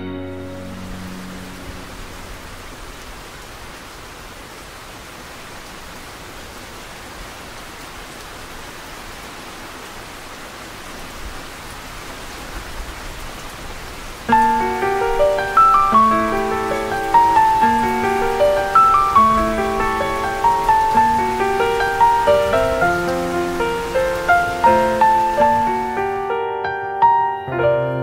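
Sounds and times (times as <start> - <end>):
musical notes: 0.0 - 2.8, 14.3 - 28.0
steady rain hiss: 0.0 - 27.2.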